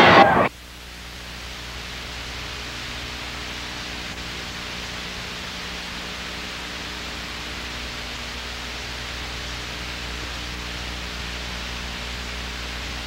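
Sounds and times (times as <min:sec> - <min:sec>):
tape hiss: 0:00.0 - 0:08.6
low electrical hum: 0:00.0 - 0:13.0.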